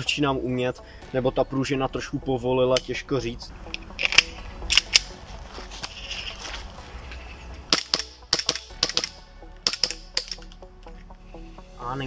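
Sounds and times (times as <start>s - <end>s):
pistol handling clicks: 3.7s - 5.2s, 7.7s - 10.7s
airsoft pistol shots: 7.7s - 10.3s.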